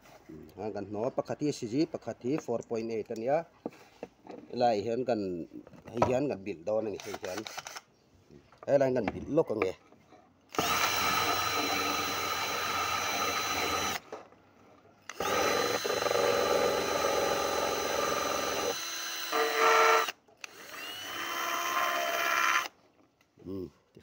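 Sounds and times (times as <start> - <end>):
small electric motor whining: 10.6 - 14.0, 15.0 - 22.7.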